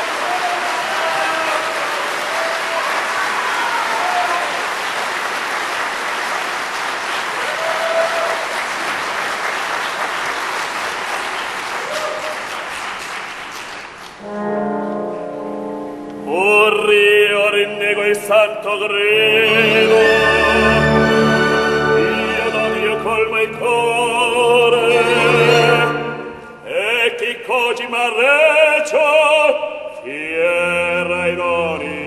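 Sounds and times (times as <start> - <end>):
audience applauding: 0.0 - 14.2
orchestra brass chord: 14.2 - 17.0, 19.3 - 23.6.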